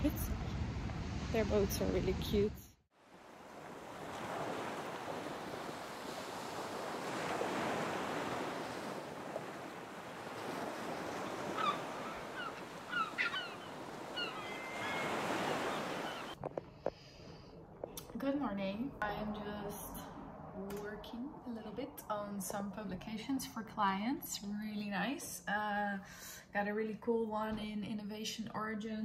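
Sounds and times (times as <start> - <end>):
ocean waves washing ashore: 0.0 - 22.5.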